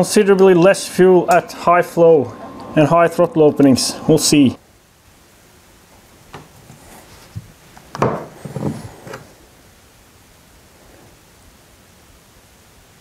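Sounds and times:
wooden creaks and rubbing: 0:06.4 - 0:09.4.

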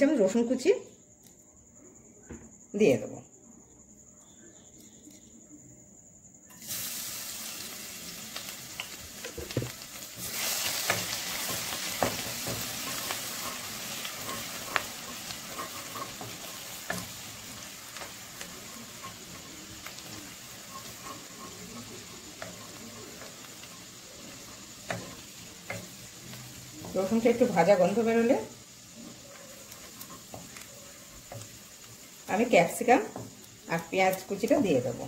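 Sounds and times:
garlic sizzling in hot oil: 0:06.5 - 0:35.0
wooden spatula tapping and scraping: 0:08.8 - 0:35.0.

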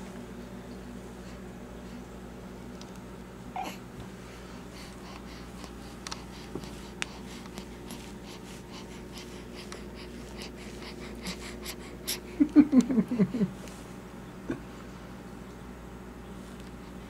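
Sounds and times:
low room hum: 0:00.0 - 0:17.0
baby breathing softly: 0:04.4 - 0:12.3.

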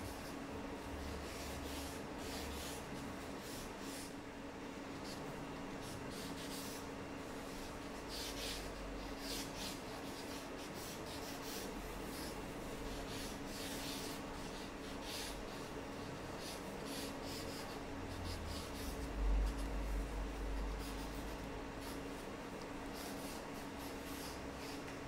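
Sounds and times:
faint steady hum: 0:00.0 - 0:25.0
drawing tool scratching paper: 0:01.0 - 0:04.1, 0:06.1 - 0:19.7.

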